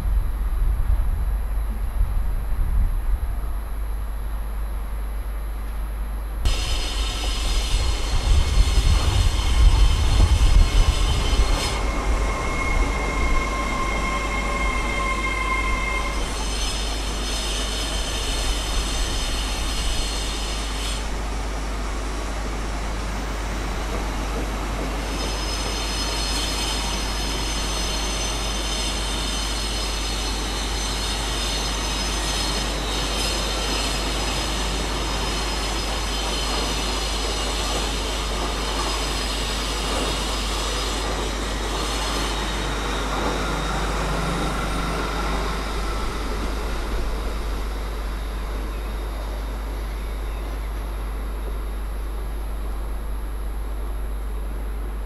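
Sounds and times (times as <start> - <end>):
diesel locomotive passing: 6.5 - 55.0
high whistling tones: 9.3 - 18.6.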